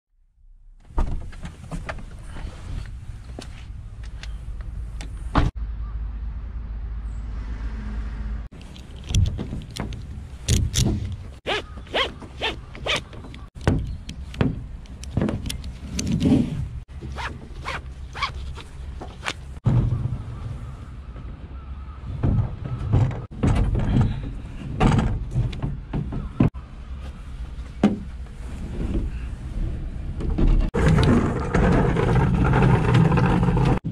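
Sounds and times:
straps zipping through buckles: 8.5s - 19.6s
clicks and thunks: 8.6s - 11.4s, 12.1s - 16.3s, 22.2s - 26.6s.

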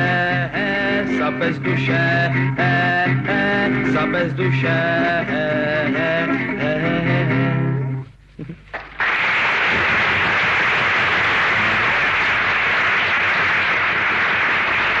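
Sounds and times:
live song: 0.0s - 8.6s
audience applause: 8.7s - 15.0s.

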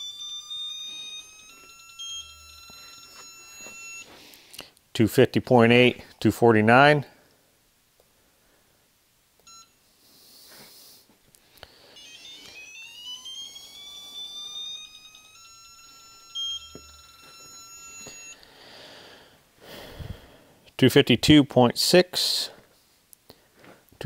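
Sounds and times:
tone rising in pitch: 12.0s - 18.4s.

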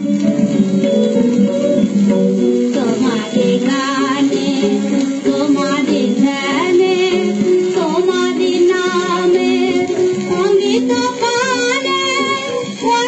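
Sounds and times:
instrumental accompaniment: 0.0s - 13.0s
woman singing: 2.7s - 13.0s.

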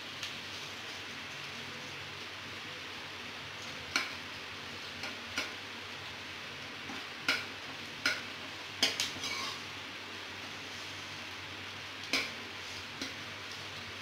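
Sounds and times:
onions sizzling in oil: 0.0s - 14.0s
metal ladle scraping pan: 9.1s - 9.7s.

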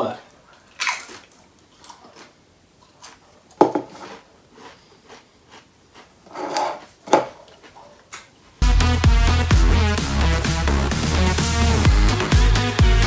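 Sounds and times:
crisps crunching while eaten: 0.7s - 8.3s.

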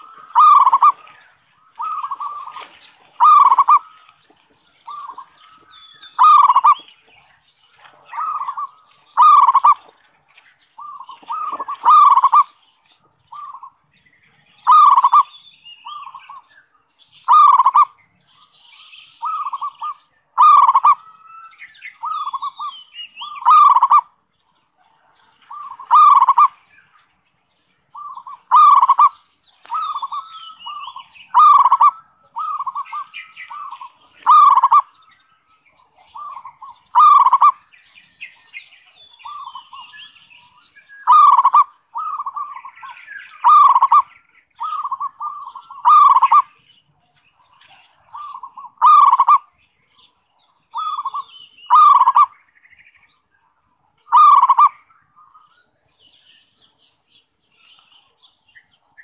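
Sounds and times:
dove cooing rapidly: 0.0s - 1.1s, 1.8s - 3.9s, 6.1s - 6.9s, 7.9s - 9.8s, 10.8s - 12.6s, 14.7s - 16.4s, 17.3s - 18.0s, 19.2s - 21.0s, 22.0s - 24.1s, 25.5s - 26.6s, 27.9s - 34.9s, 35.9s - 37.6s, 41.0s - 46.6s, 47.9s - 49.5s, 50.7s - 52.4s, 54.1s - 54.8s.

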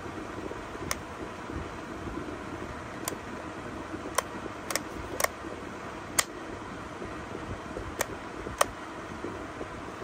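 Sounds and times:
rocker switch clicking: 4.1s - 5.4s, 6.1s - 6.4s, 7.9s - 8.8s.

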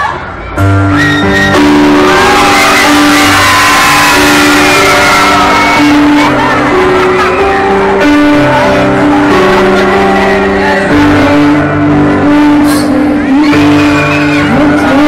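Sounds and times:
crowd screaming: 0.0s - 15.0s
keyboard playing long held notes: 0.6s - 15.0s.

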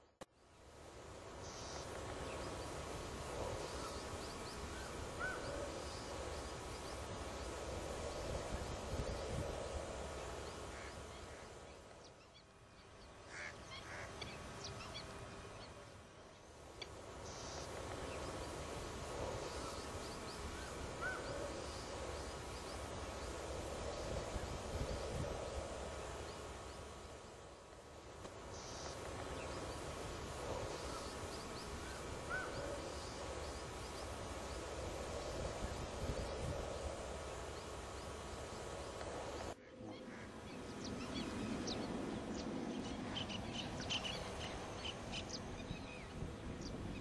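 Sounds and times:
small birds chirping: 1.3s - 47.0s
waterbirds honking: 10.7s - 11.6s, 13.2s - 15.0s, 39.6s - 40.6s.

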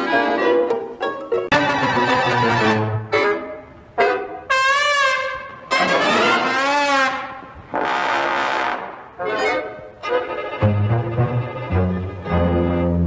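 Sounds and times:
brass playing wobbling notes: 1.5s - 13.0s.

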